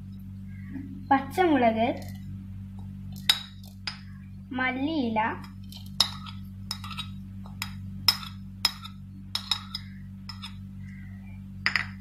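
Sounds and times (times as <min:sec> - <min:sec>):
steady low hum: 0:00.0 - 0:12.0
spoon clinking against bowl: 0:06.0 - 0:10.6.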